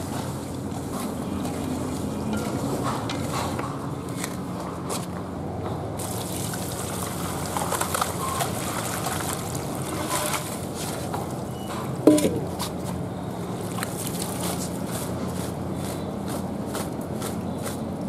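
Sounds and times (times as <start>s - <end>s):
water splashing and trickling: 6.0s - 15.2s.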